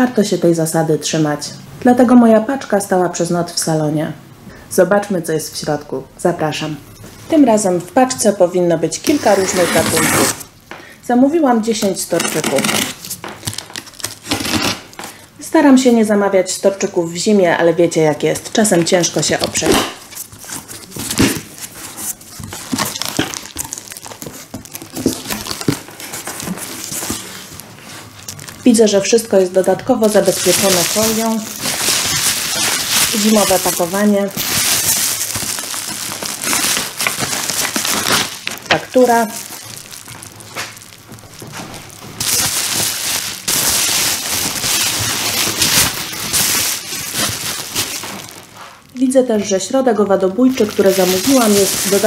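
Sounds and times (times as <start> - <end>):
bubble wrap crinkling: 8.9 - 10.5, 11.8 - 15.2, 18.4 - 52.0.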